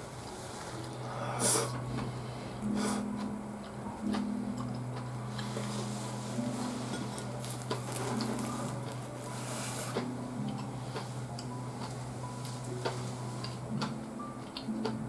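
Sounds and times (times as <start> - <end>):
steady low hum: 0.0 - 15.0
person chewing: 6.7 - 15.0.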